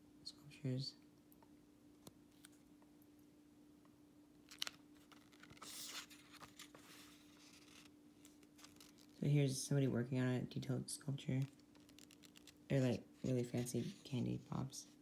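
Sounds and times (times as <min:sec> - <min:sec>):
low steady hum: 0:00.0 - 0:15.0
paper booklet rustling: 0:04.4 - 0:09.4, 0:11.4 - 0:15.0.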